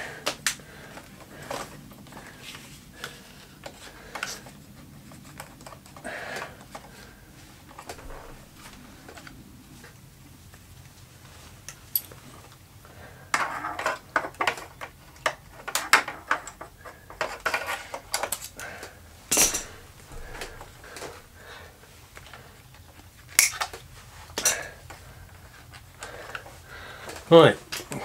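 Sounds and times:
small clicks rattles and scrapes: 13.3s - 21.2s.

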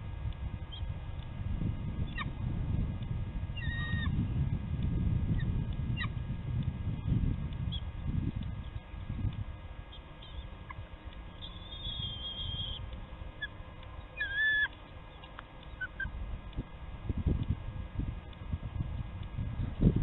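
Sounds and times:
low rumble: 0.0s - 20.0s
eagle chirp: 3.6s - 4.2s, 9.8s - 16.2s
eagle whistling calls: 3.6s - 4.2s, 9.9s - 10.8s, 11.4s - 16.1s
faint peeps: 9.9s - 16.2s.

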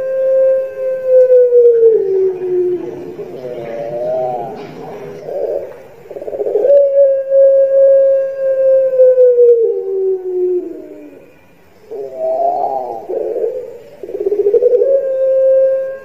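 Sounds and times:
dove cooing: 0.0s - 16.0s.

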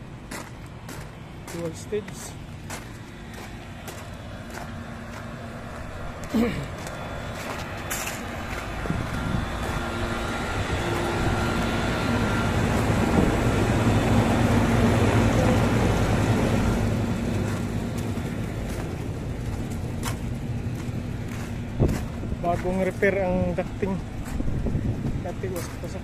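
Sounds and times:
air conditioning fans blowing: 0.0s - 26.0s
compressor humming: 0.0s - 26.0s.

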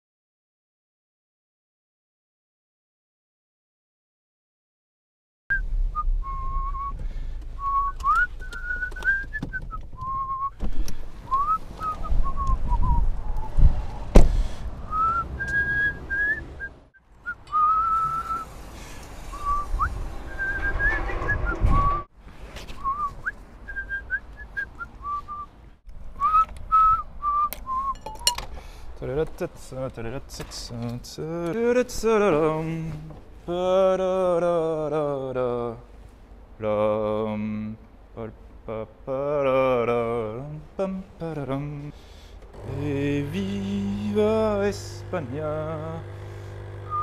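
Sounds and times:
person whistling a tune: 5.5s - 7.0s, 7.6s - 10.6s, 11.3s - 13.6s, 14.9s - 18.5s, 19.3s - 22.1s, 22.8s - 25.5s, 26.2s - 28.4s.

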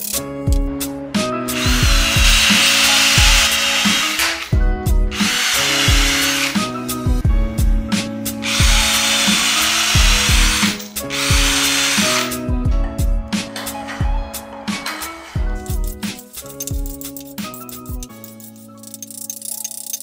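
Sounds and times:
background music with steady beat: 0.0s - 20.0s
cordless drill boring into wood: 1.6s - 4.5s, 5.1s - 6.6s, 8.4s - 12.4s.

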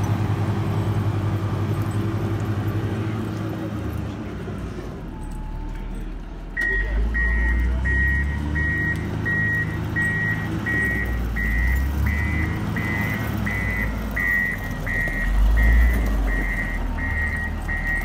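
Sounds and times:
diesel engine running: 0.0s - 18.0s
reversing alarm beeping: 6.6s - 18.0s.

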